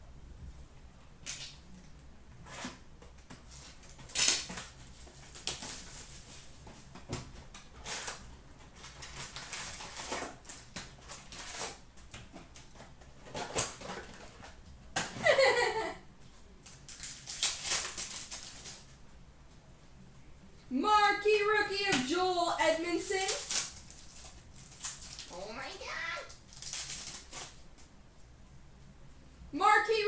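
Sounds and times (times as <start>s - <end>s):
foil wrappers crinkling and tearing: 3.5s - 6.5s, 7.6s - 14.6s, 16.6s - 19.0s, 22.9s - 27.6s.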